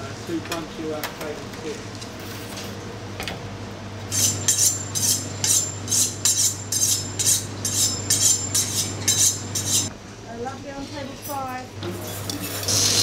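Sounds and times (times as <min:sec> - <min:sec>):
knife scraping on honing steel: 0:04.1 - 0:09.9.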